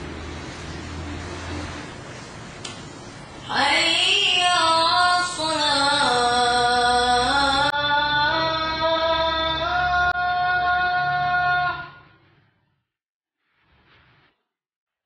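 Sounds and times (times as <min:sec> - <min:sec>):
person chanting: 0:03.5 - 0:12.0.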